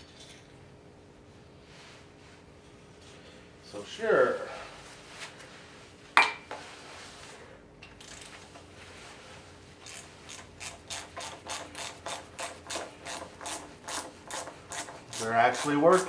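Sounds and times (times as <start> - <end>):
ratchet wrench clicking: 9.8 - 16.0.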